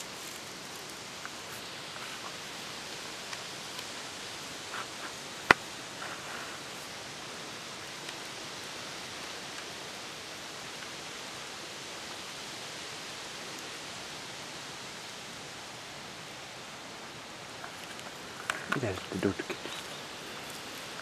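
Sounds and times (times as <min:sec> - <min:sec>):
soft rustles: 0:00.0 - 0:04.0, 0:04.6 - 0:07.0, 0:17.6 - 0:21.0
steady outdoor hiss: 0:00.0 - 0:21.0.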